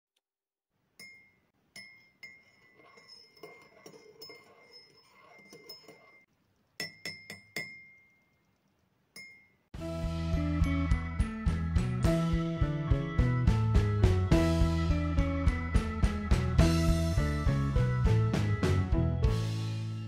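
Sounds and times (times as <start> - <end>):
teaspoon clinking in teacup: 1.0 - 8.4, 9.2 - 9.6.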